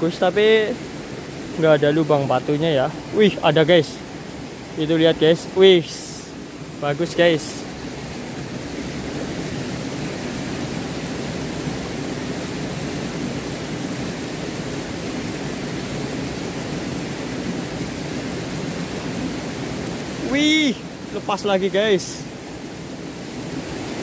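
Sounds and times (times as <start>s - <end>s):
stream and small waterfall rushing: 0.0s - 24.0s.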